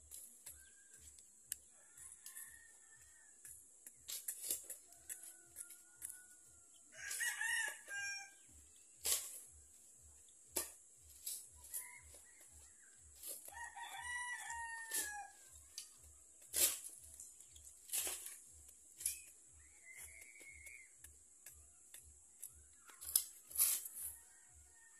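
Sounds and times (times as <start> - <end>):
rooster crowing: 1.7 - 3.5, 4.8 - 8.5, 11.6 - 15.9, 22.8 - 24.9
digging blade striking soil: 3.4 - 24.3.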